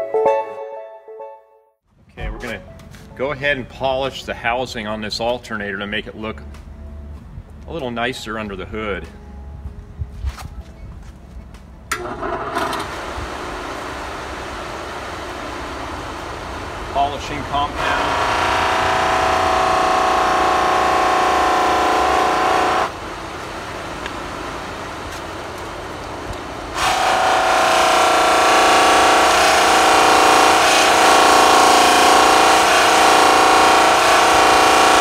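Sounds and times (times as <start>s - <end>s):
bench buffer motor whine: 12.0s - 22.9s, 26.8s - 35.0s.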